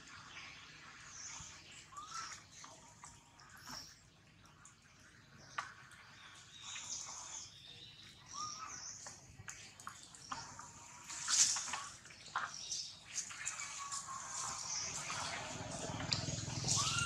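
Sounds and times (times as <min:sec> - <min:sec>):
small clicks and rustles: 0:09.0 - 0:17.0
high-pitched animal chirps: 0:16.7 - 0:17.0.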